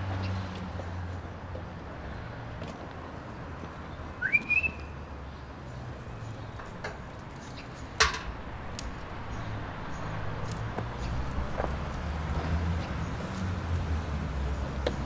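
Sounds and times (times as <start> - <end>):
rising whistle: 4.2 - 5.0.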